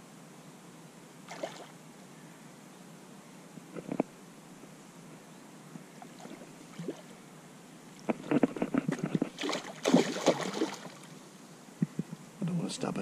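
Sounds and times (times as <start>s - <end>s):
fish splashing in water: 1.3s - 1.7s, 8.9s - 11.1s.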